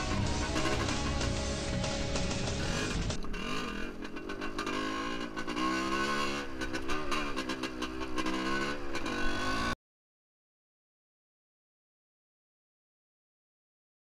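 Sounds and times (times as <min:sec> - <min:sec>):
two-stroke motorcycle engine revving: 0:00.0 - 0:09.8.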